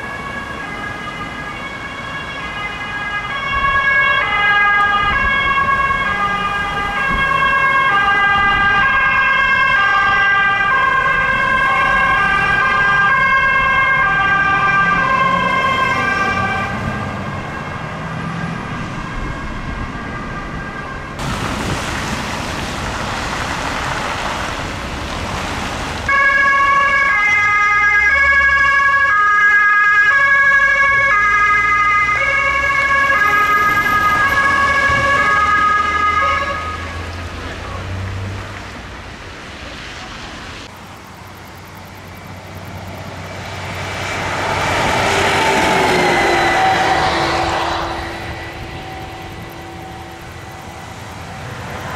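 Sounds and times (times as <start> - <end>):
emergency vehicle sirens: 0.0 - 51.9.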